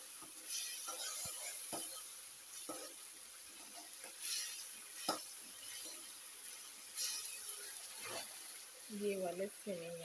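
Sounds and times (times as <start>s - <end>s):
vegetables sizzling in oil: 0.0s - 10.0s
metal spoon scraping pan: 0.4s - 3.0s, 3.6s - 6.1s, 7.0s - 8.4s.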